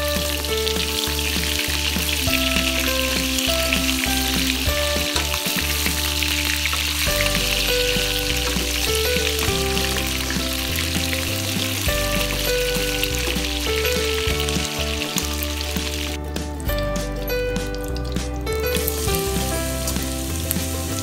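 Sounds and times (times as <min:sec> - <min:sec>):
meat sizzling in hot oil: 0:00.0 - 0:16.2, 0:17.7 - 0:21.0
background music with bass: 0:00.0 - 0:21.0
wooden spatula stirring in wok: 0:03.9 - 0:16.2.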